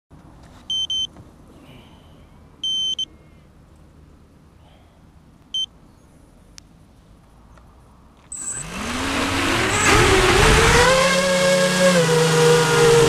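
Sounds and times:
high electronic beeps: 0:08.3 - 0:08.7.

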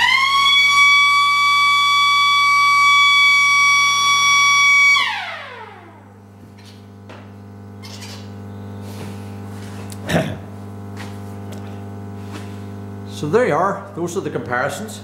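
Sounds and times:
electric motor siren wailing: 0:00.0 - 0:06.2
low power pack hum: 0:00.0 - 0:15.0.

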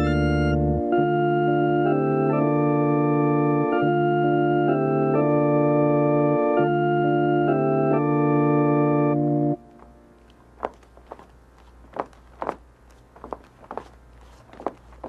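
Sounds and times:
electric organ chords: 0:00.0 - 0:10.2.

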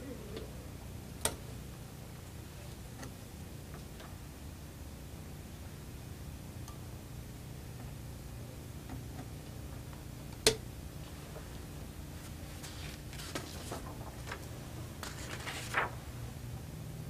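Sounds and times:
steady low hum: 0:00.0 - 0:17.0
rustles: 0:12.2 - 0:16.0.

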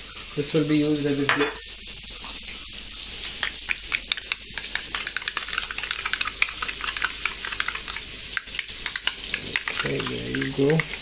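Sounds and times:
deep-frying oil crackling: 0:00.0 - 0:11.0
spoon stirring in glass bowl: 0:03.3 - 0:11.0.

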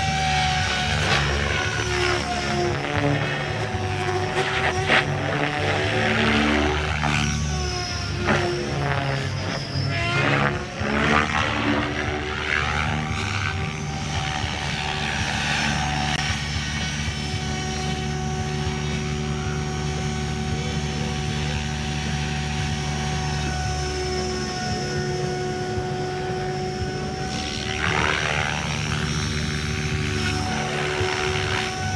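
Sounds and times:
rc helicopter rotor whine: 0:00.0 - 0:31.9.

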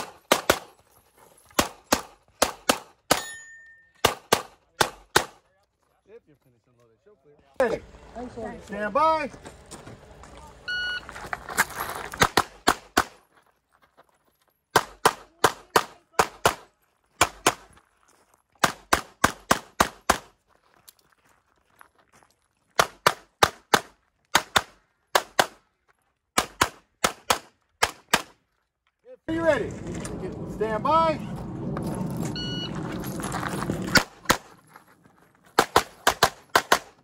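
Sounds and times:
rapid pistol fire: 0:35.6 - 0:37.0.

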